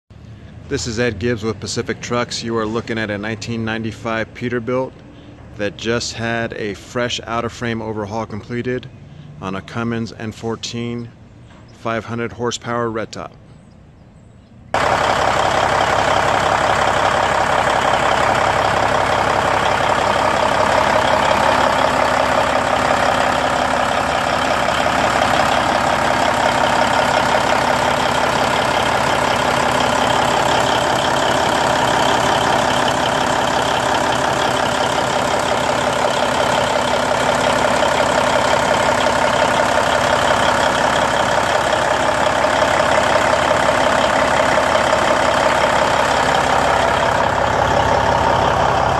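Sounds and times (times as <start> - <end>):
diesel engine idling: 14.8 - 48.9.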